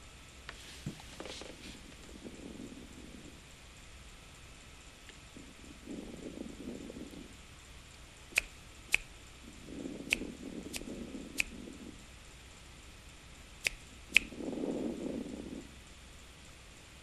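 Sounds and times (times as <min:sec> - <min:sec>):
muffled low rushing: 0:01.8 - 0:16.3
sharp brief clicks: 0:08.4 - 0:09.1, 0:13.6 - 0:14.4.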